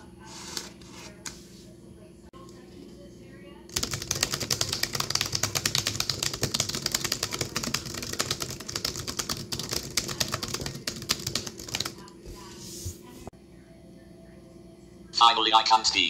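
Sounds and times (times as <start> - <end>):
fast laptop keyboard typing: 3.7 - 12.2.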